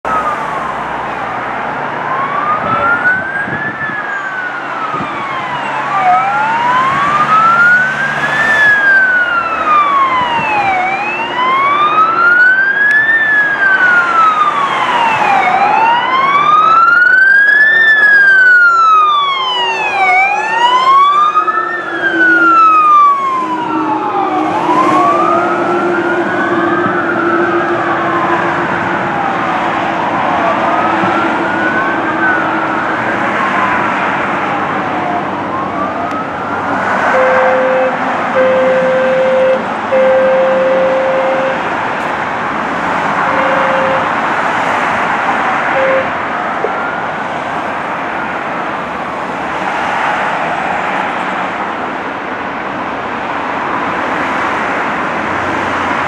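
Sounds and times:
fire engine sirens wailing: 0:00.0 - 0:56.0.

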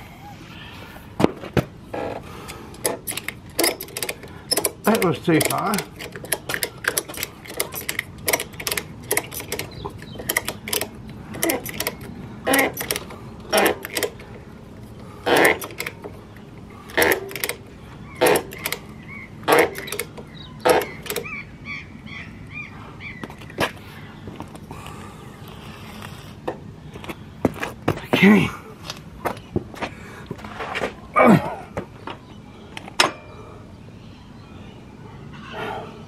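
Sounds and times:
ratchet strap clicking: 0:02.5 - 0:14.3, 0:15.2 - 0:16.1, 0:16.9 - 0:17.6, 0:18.2 - 0:21.3.

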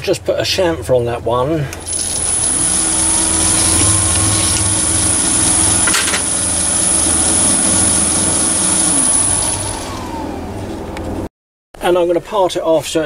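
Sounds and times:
file rubbing spinning metal: 0:01.8 - 0:10.9
lathe motor whine: 0:01.8 - 0:11.3.

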